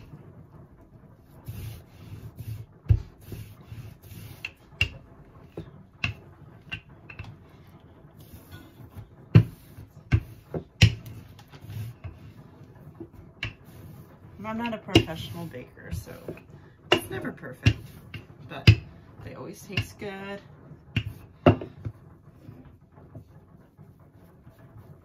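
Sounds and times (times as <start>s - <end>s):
rolling pin rubbing over dough: 0.0s - 25.0s
wooden rolling pin clacks: 2.4s - 7.5s, 8.9s - 20.2s, 20.8s - 22.2s.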